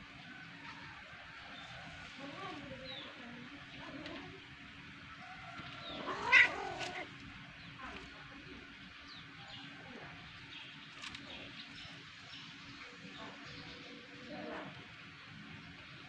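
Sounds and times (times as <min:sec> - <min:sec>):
cat yowling: 0:05.9 - 0:07.1.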